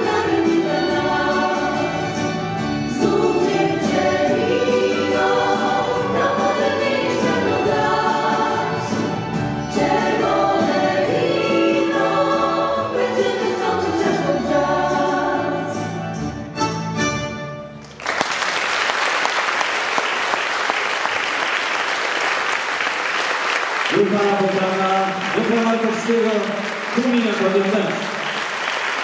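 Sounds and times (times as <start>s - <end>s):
girls singing in harmony: 0.0s - 15.9s
band playing: 0.0s - 18.0s
audience applauding: 17.8s - 29.0s.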